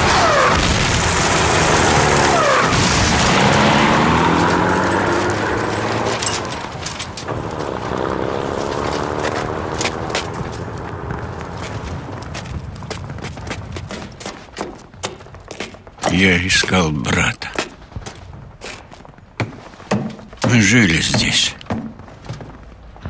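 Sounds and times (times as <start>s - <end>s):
explosions: 0.0s - 4.4s
vehicle engine revving: 0.0s - 12.3s.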